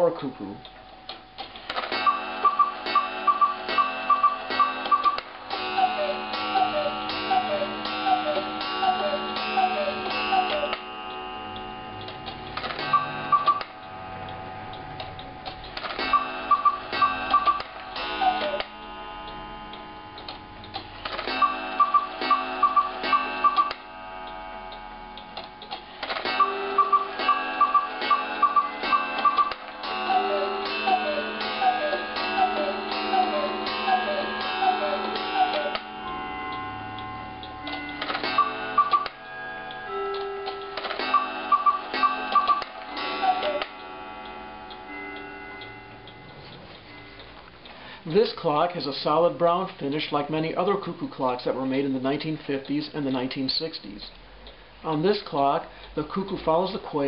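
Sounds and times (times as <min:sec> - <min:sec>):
clock ticking: 0:00.0 - 0:53.4, 0:54.3 - 0:57.0
cuckoo calls: 0:02.1 - 0:10.8, 0:16.1 - 0:18.7, 0:21.4 - 0:23.8, 0:26.4 - 0:35.9, 0:40.1 - 0:43.8
quail whistled calls: 0:05.8 - 0:10.7, 0:18.2 - 0:18.6, 0:43.2 - 0:43.6.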